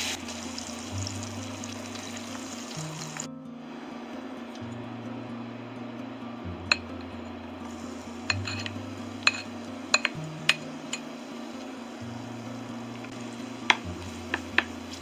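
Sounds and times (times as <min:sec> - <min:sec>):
low steady hum: 0:00.0 - 0:15.0
utensils clinking on frying pan: 0:07.7 - 0:11.2, 0:13.7 - 0:15.0.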